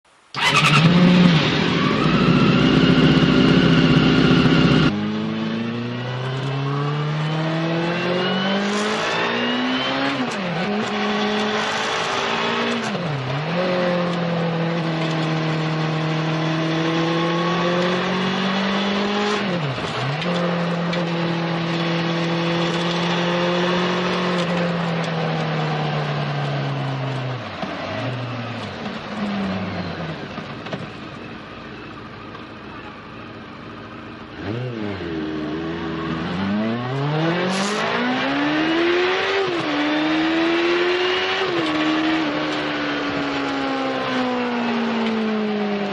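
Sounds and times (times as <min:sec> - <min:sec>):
loud rough engine sound: 0:00.4 - 0:05.3
motorcycle engine upshifting: 0:00.4 - 0:31.9.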